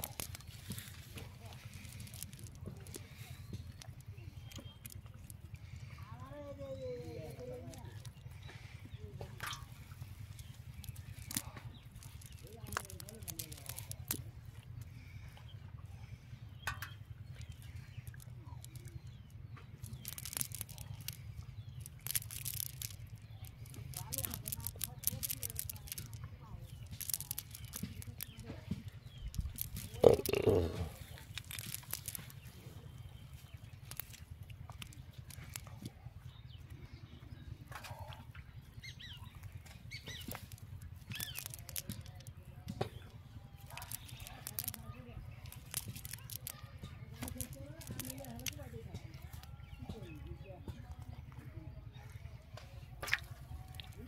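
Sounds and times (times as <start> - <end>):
sinker chain clicking: 0.0 - 5.6, 9.4 - 14.2, 16.7 - 32.5, 33.4 - 35.9, 38.9 - 42.4, 43.6 - 49.6
birds chirping: 0.0 - 54.0
net mesh rustling: 21.8 - 26.2, 45.5 - 46.6.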